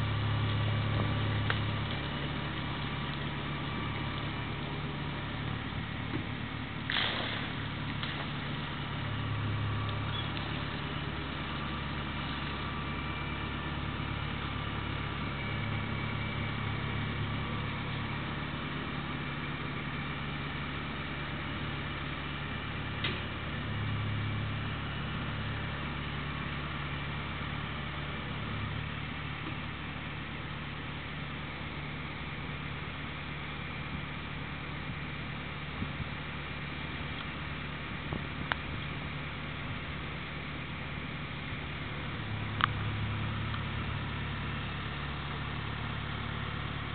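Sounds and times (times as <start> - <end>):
tractor engine under load: 0.0 - 46.9.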